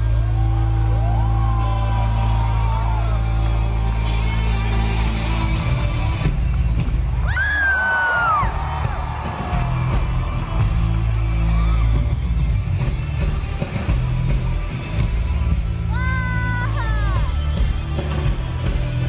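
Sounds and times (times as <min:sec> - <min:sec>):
live concert music with heavy bass: 0:00.0 - 0:19.0
person yelling: 0:15.9 - 0:17.4.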